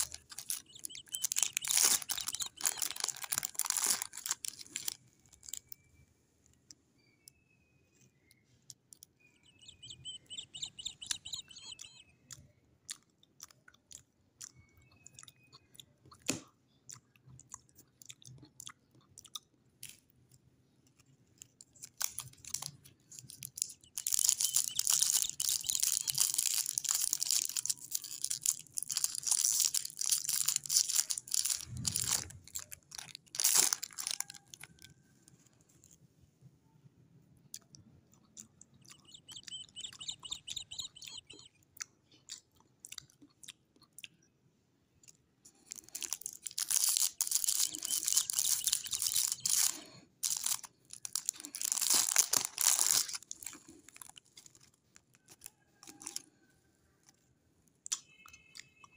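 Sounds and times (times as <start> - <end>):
cellophane wrapper crinkling: 0.0 - 5.9, 21.4 - 36.0, 45.5 - 56.2.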